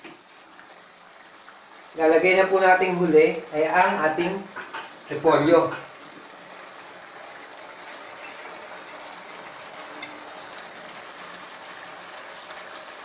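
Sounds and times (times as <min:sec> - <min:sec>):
food sizzling in a wok: 0:00.0 - 0:13.0.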